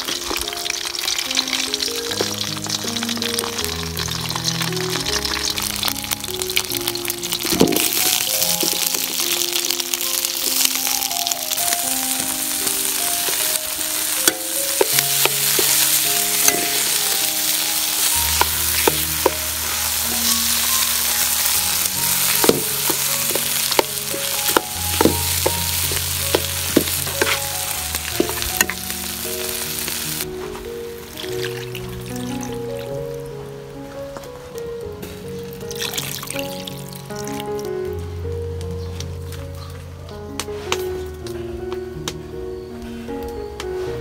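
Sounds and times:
food sizzling in hot oil: 0.0 - 32.9, 35.0 - 37.7
soft background music: 0.0 - 44.0
metal ladle scraping a pan: 13.2 - 30.2.

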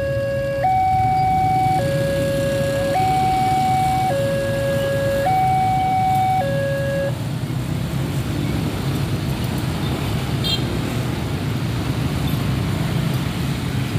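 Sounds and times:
level-crossing two-tone alarm: 0.0 - 7.2
motorcycle traffic rumble: 0.0 - 13.9.

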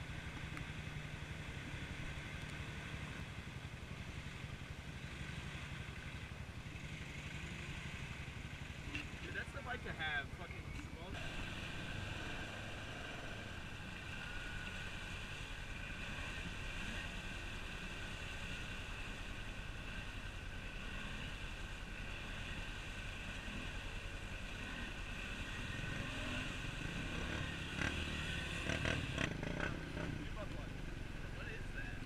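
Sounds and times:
off-road vehicle engines running: 0.0 - 32.0
vehicle churning through mud: 10.9 - 32.0.

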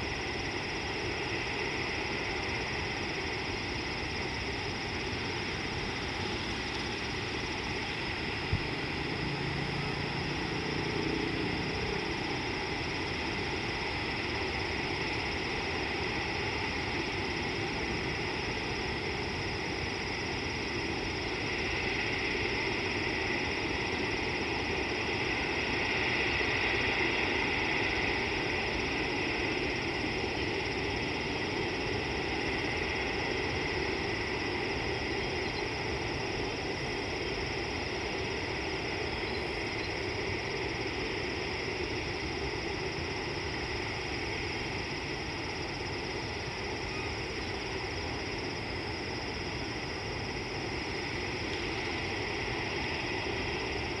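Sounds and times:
outdoor background hiss: 0.0 - 54.0.

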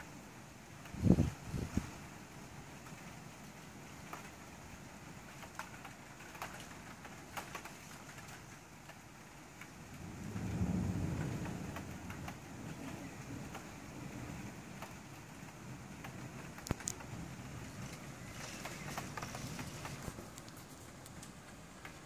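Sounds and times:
raindrops ticking close by: 0.0 - 22.0
steady rain: 0.0 - 22.0
low roll of thunder: 9.8 - 20.2.

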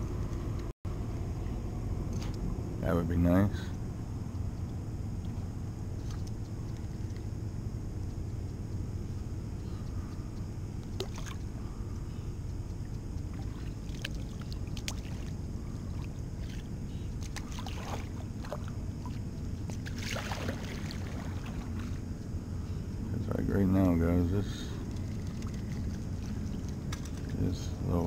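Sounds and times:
low rumble: 0.0 - 28.0
paddle splashing in water: 13.3 - 19.2, 19.8 - 22.0.

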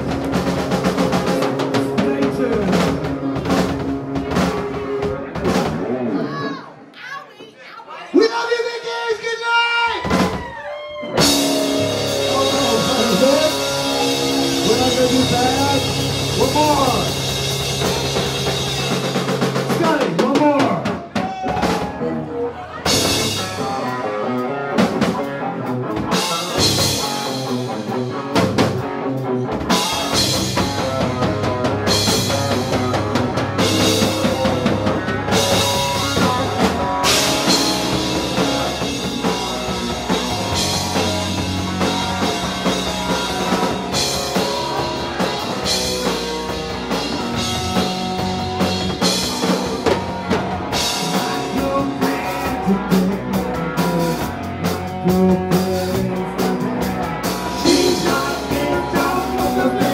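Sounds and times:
distorted electric guitar: 0.0 - 6.3, 11.0 - 59.9
bass guitar: 0.0 - 6.9, 9.9 - 59.9
drum kit with cymbal crashes: 11.2 - 22.0, 29.7 - 54.2.

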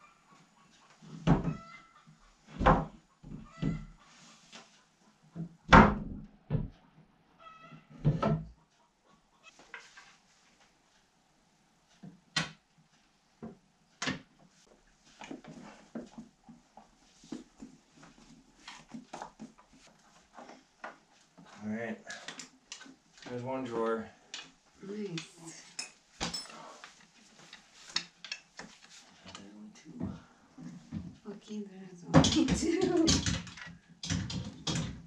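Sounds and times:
wooden knocks and thuds: 1.1 - 1.6, 2.5 - 3.9, 5.4 - 6.8.

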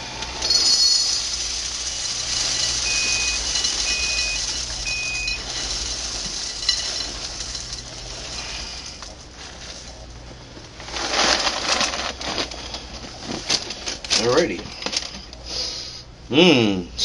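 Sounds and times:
cereal pouring into a bowl: 0.3 - 10.1, 10.9 - 12.5
short beeps: 2.8 - 5.4.

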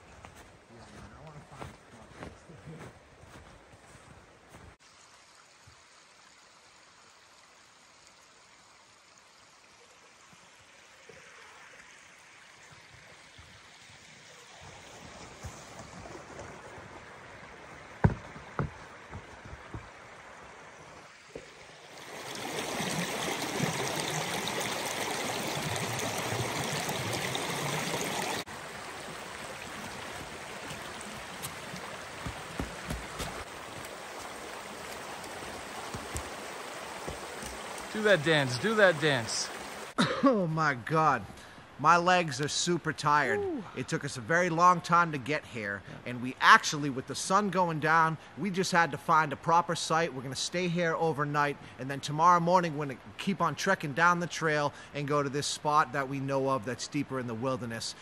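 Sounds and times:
stream rushing over rocks: 4.8 - 40.0.

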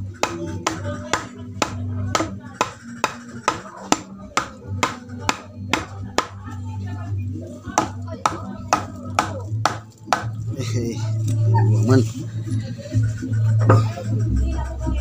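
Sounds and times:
music: 0.0 - 15.0
hammer striking wood: 0.2 - 6.4, 7.8 - 10.4.

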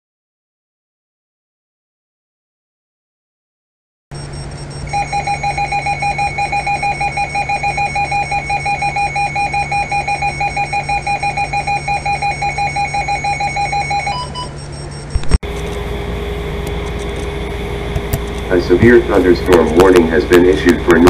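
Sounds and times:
rapidly pulsing alarm beep: 4.2 - 15.2
steady hum: 4.2 - 21.0
radio switch click: 17.9 - 18.5.

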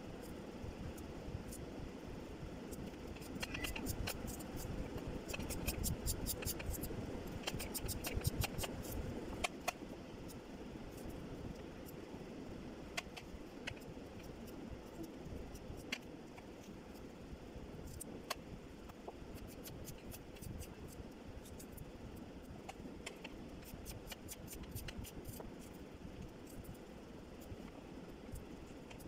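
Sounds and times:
low background hum: 0.0 - 29.0.

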